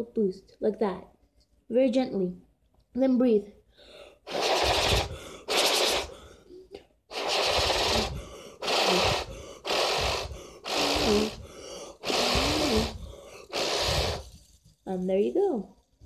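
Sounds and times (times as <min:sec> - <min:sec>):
puffs of breath on fidget spinner: 0:03.7 - 0:14.8.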